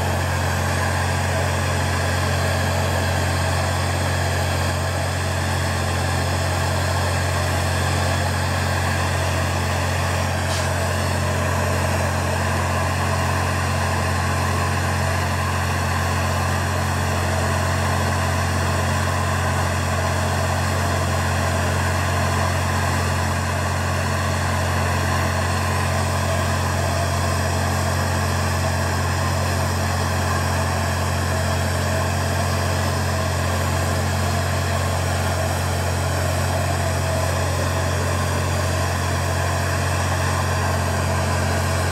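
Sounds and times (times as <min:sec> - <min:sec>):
gas torch flame roaring: 0:00.0 - 0:41.9.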